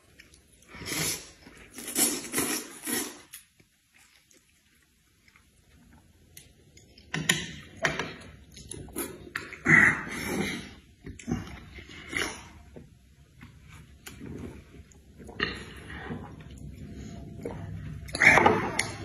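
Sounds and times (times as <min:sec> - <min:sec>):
noisy eating slurps: 0:00.7 - 0:03.4.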